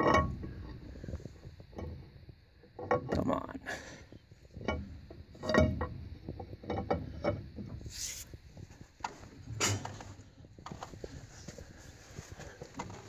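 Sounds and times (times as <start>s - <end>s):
metal knocks and clanks: 0.0s - 1.0s, 1.6s - 3.3s, 4.5s - 7.9s, 9.0s - 11.0s.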